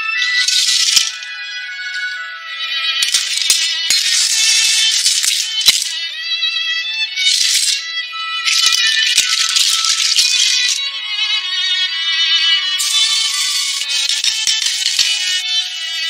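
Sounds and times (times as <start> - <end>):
background music with high melodic tones: 0.0 - 16.0
clam shells rattling in water: 0.4 - 1.2, 3.0 - 5.9, 7.3 - 7.8, 8.5 - 10.8, 12.8 - 15.2.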